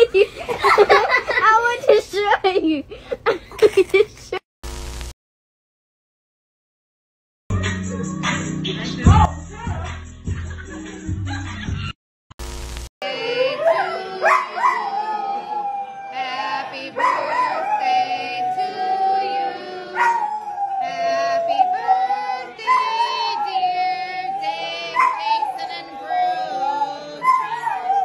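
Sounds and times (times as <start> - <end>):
large dog howling: 13.4 - 28.0.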